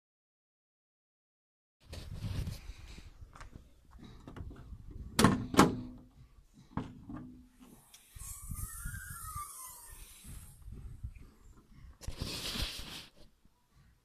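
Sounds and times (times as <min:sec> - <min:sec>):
car bonnet metallic clunks: 0:05.1 - 0:06.0.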